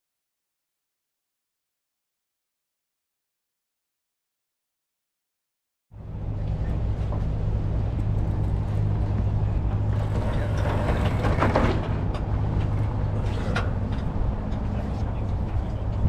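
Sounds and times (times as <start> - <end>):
boat engine humming: 5.9 - 16.0.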